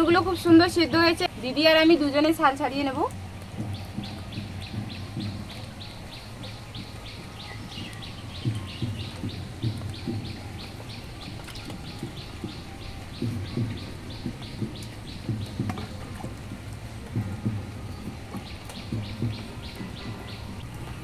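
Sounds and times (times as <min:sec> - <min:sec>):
faint low knocks: 0:00.0 - 0:21.0
bird chirping: 0:03.4 - 0:16.3, 0:17.4 - 0:21.0.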